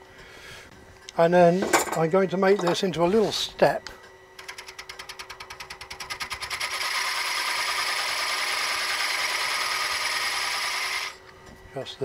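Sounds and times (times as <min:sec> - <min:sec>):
lathe tool cutting wood: 0:06.5 - 0:11.2.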